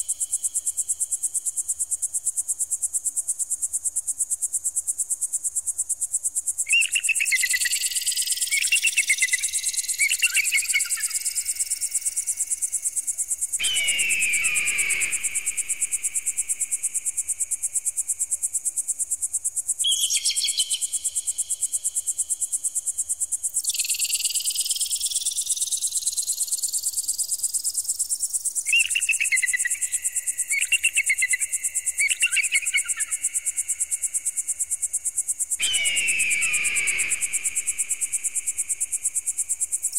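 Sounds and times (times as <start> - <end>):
shrill repeated calls: 13.6 - 16.0, 35.6 - 38.1.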